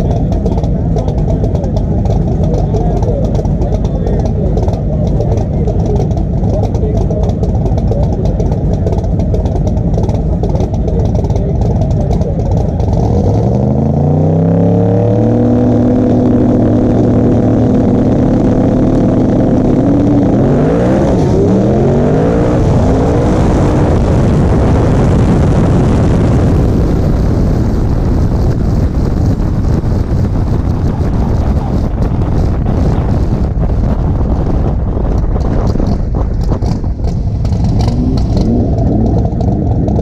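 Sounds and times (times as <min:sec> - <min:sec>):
race car engine revving: 0:00.0 - 0:40.0
wind rush: 0:15.2 - 0:40.0.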